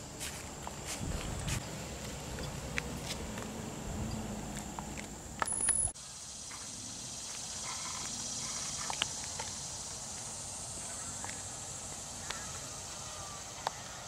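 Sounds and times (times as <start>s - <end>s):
steady high hiss: 0.0s - 14.0s
wind and handling rumble: 0.1s - 5.9s.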